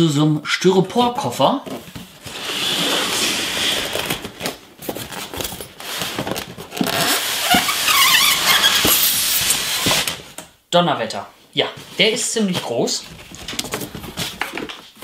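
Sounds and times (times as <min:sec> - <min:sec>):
high foam squeaks: 0:06.8 - 0:10.1.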